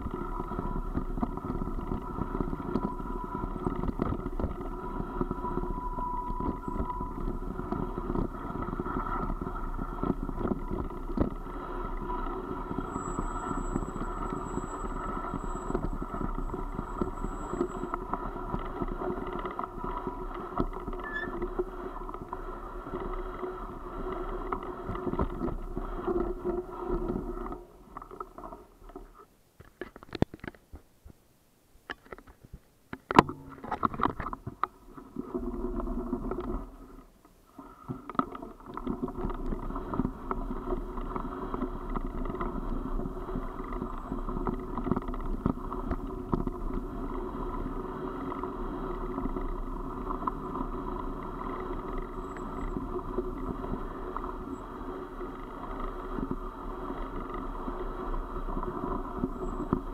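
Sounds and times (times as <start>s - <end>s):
wind buffeting microphone: 0.0s - 27.3s.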